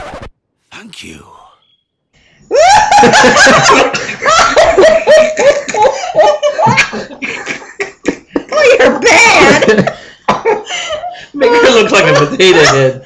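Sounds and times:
elderly woman laughing hard: 2.5 - 12.9.

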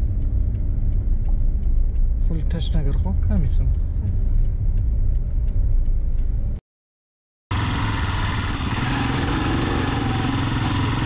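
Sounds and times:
road rumble inside car: 0.0 - 6.6
motorcycle engine running: 7.5 - 11.0.

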